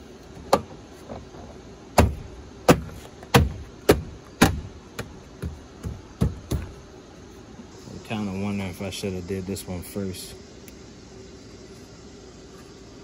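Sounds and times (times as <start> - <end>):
hand thumping plastic door panel: 2.0 - 6.8.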